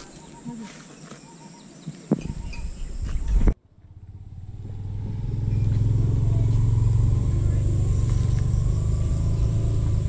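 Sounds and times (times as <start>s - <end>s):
low engine drone: 3.4s - 10.0s.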